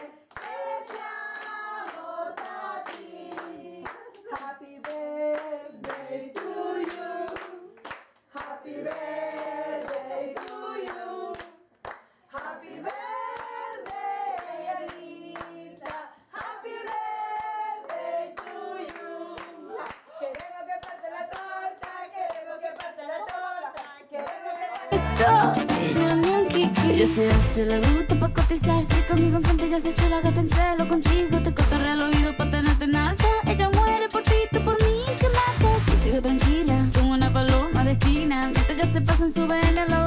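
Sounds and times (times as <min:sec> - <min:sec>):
group singing together: 0:00.0 - 0:11.6, 0:12.3 - 0:28.0
people clapping in time: 0:00.0 - 0:27.1, 0:27.8 - 0:39.9.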